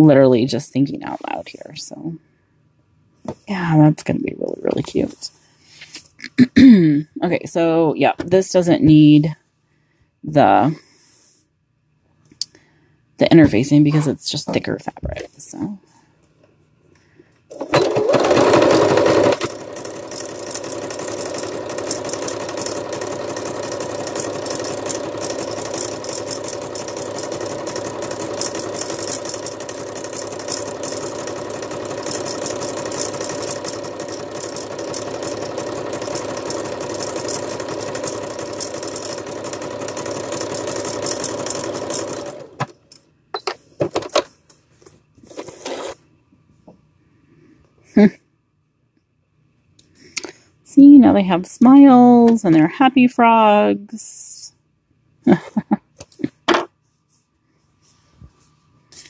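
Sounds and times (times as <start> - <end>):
electric sewing machine stitching: 17.5 - 42.9, 45.3 - 46.0.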